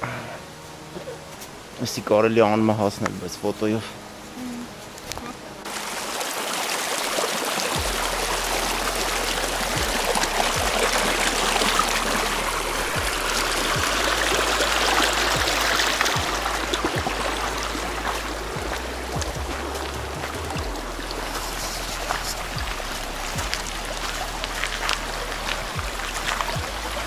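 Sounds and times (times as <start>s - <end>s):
brook babbling over stones: 1.2s - 27.0s
low bumps: 7.8s - 27.0s
low rumble: 7.8s - 27.0s.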